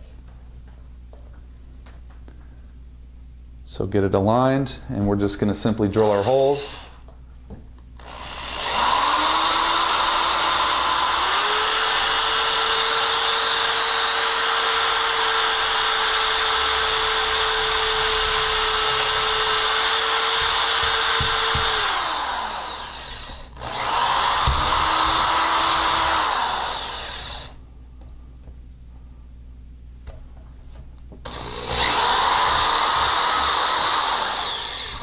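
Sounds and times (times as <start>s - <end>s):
cordless drill motor whine: 6.0s - 7.0s, 8.0s - 27.6s, 31.2s - 35.0s.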